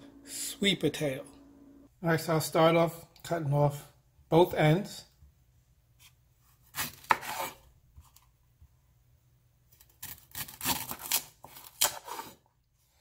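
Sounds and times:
knife cutting bananas: 0:06.0 - 0:08.2, 0:09.8 - 0:12.4.

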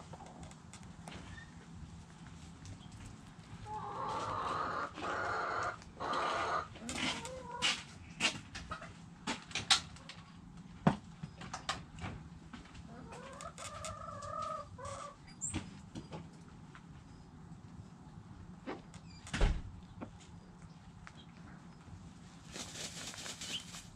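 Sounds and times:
chickens scratching and pecking dirt: 0:00.0 - 0:17.0, 0:20.1 - 0:23.9
chickens calling: 0:03.5 - 0:08.0, 0:12.9 - 0:15.3.

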